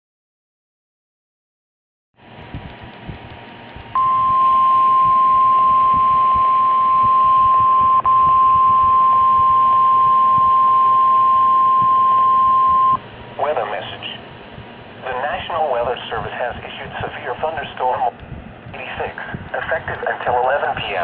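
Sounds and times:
radio hiss: 0:13.4 - 0:14.3, 0:15.0 - 0:21.0.

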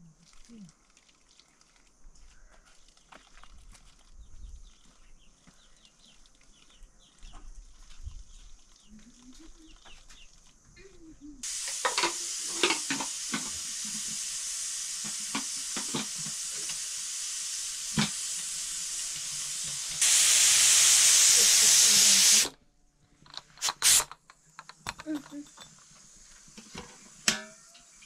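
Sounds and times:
pressure cooker steam hissing: 0:11.4 - 0:22.5, 0:23.4 - 0:28.0
metal clanks: 0:26.7 - 0:27.9.

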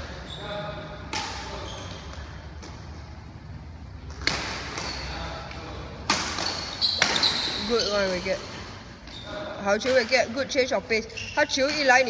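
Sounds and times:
racket hitting shuttlecock: 0:04.1 - 0:05.0, 0:06.0 - 0:08.7.

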